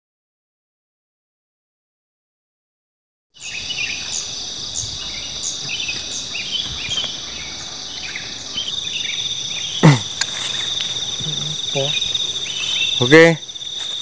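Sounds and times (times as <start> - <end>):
insects trilling: 3.4 - 14.0
short insect chirp: 3.4 - 14.0.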